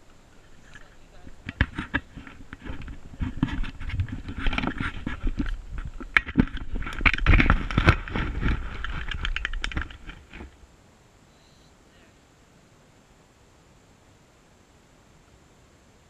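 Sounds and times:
camera scraping in loose dirt: 0.0 - 10.6.

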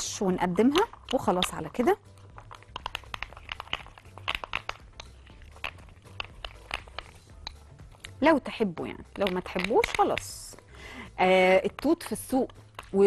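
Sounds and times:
light clicks and taps in bowl: 0.6 - 8.2.

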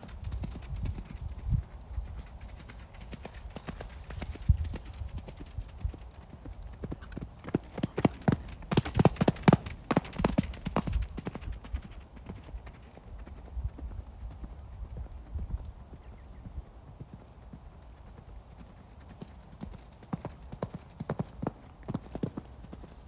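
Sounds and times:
horse hoofbeats on sand: 0.0 - 17.3.

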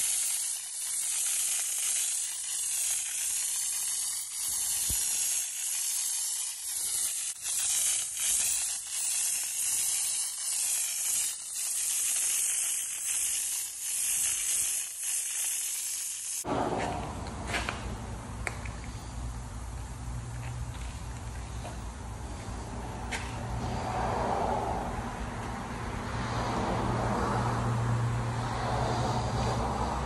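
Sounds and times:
spray gun hissing: 0.0 - 16.7.

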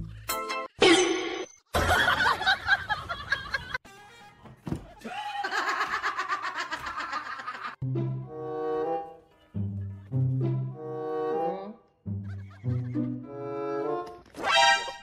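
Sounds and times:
snickering laugh: 5.3 - 7.8, 12.2 - 13.2
music: 7.8 - 15.0.

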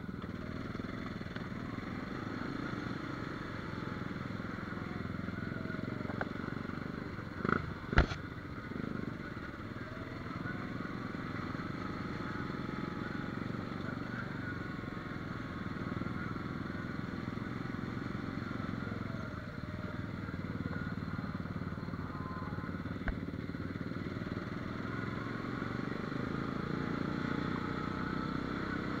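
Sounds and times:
quad bike engine revving: 0.4 - 29.0.

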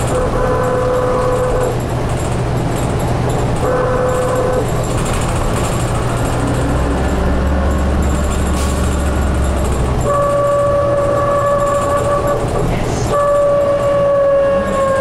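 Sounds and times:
bus engine running: 0.0 - 15.0.

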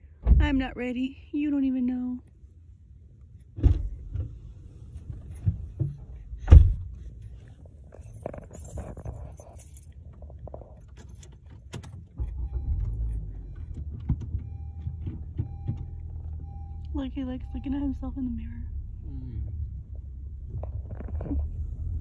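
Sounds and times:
car engine starting and idling: 2.3 - 22.0
car door shutting: 3.6 - 7.0
keys jingling: 7.1 - 12.2
thin warning beep: 14.4 - 18.4.

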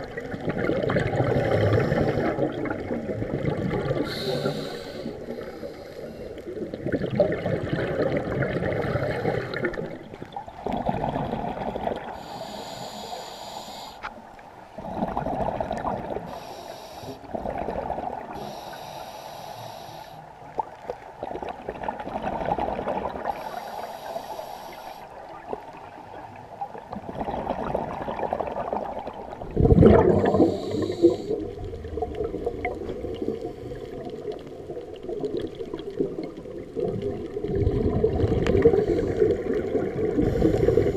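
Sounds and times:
bubbling exhalations underwater: 0.0 - 4.5, 6.5 - 12.2, 14.8 - 16.3, 17.3 - 18.4, 21.2 - 23.4, 26.7 - 40.9
diver inhaling through regulator: 1.2 - 2.6, 4.0 - 6.5, 9.0 - 9.8, 12.1 - 14.1, 16.2 - 17.3, 18.4 - 20.3, 23.2 - 25.1, 29.8 - 31.6, 38.5 - 40.9.

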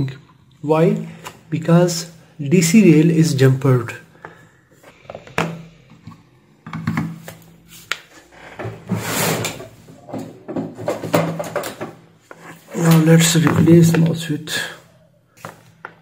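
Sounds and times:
scraping and rustling: 7.7 - 13.3
tools clicking and knocking on workbench: 10.1 - 14.0.

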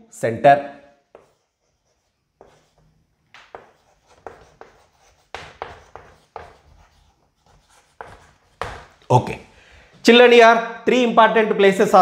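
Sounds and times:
chalk writing on a blackboard: 1.0 - 9.1
person speaking: 8.9 - 12.0.

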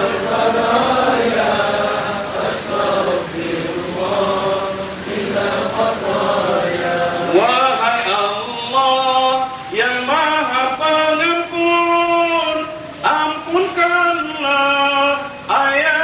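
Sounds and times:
man chanting through microphone: 0.0 - 16.0.

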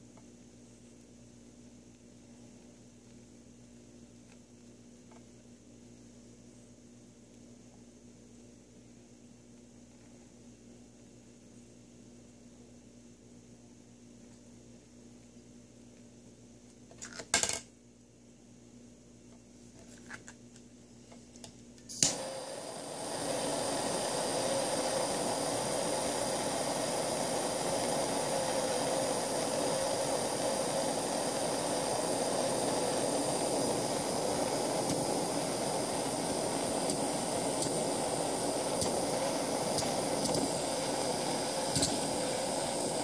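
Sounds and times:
torch flame hissing: 21.9 - 43.0
torch igniter click: 21.9 - 43.0.

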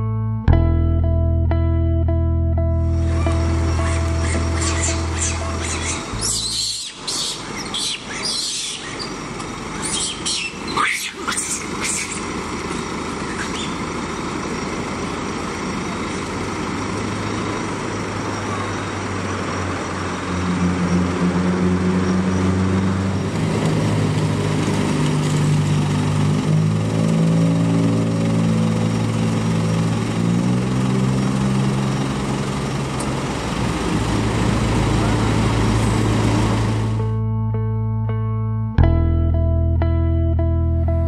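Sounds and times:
truck engine idling: 2.8 - 37.4
slow background music: 37.0 - 41.0.

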